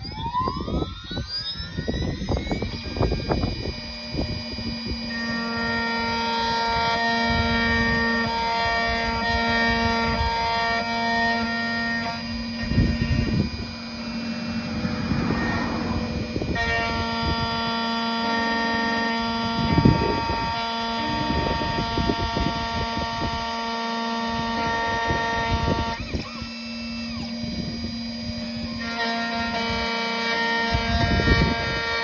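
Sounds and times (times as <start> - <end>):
carriage whirring: 0.0 - 32.0
key cutting machine whine: 0.0 - 32.0.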